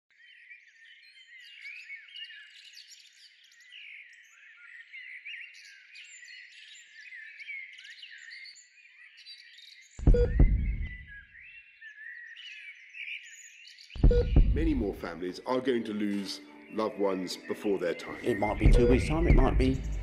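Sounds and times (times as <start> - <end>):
small birds chirping: 0.1 - 20.0
sudden deep boom: 10.1 - 11.0, 14.0 - 15.0, 18.5 - 20.0.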